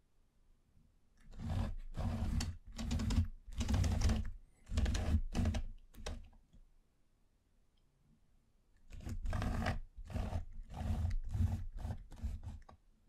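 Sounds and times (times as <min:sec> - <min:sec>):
wooden base scraping on table: 0:01.3 - 0:05.6.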